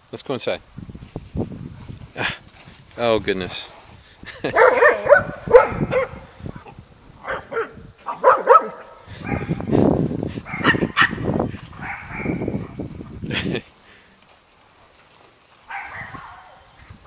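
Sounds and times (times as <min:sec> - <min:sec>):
dogs barking and yipping: 0:04.4 - 0:09.8, 0:10.4 - 0:12.9, 0:15.6 - 0:17.0.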